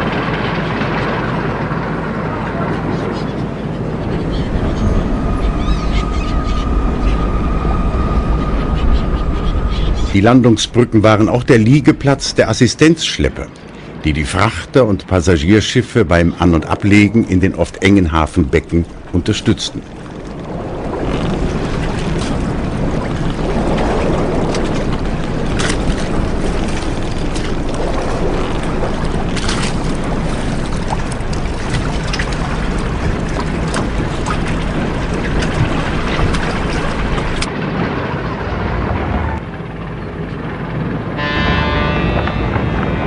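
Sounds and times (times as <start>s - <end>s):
boat engine running: 0.0s - 12.8s, 16.6s - 43.0s
wind: 0.0s - 43.0s
water splashing: 16.4s - 39.0s.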